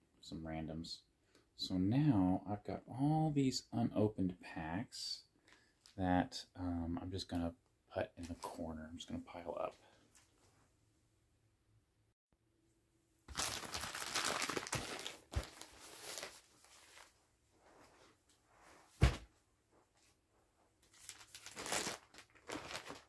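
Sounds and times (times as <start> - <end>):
plastic packs crinkling: 13.3 - 17.2, 20.9 - 23.0.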